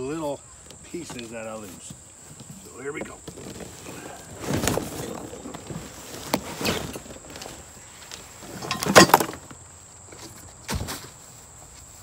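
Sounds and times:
parts tumbling onto grass: 0.0s - 12.0s
cardboard box rustling: 0.8s - 9.5s.

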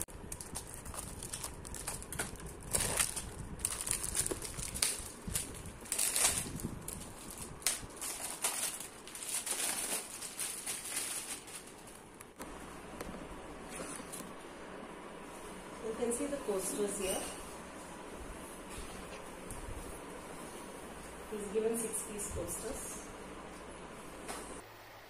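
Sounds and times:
plastic wrapping crinkling: 0.0s - 12.4s.

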